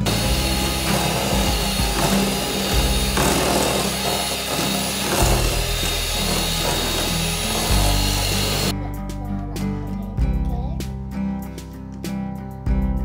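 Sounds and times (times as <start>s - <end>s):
electric hand mixer whirring: 0.0s - 8.7s
background music with bass line: 0.0s - 13.0s.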